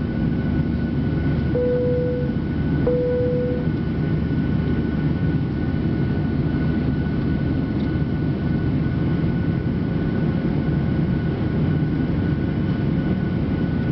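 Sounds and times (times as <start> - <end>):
jet engine and air roar: 0.0 - 13.9
thin steady whine: 1.2 - 4.3.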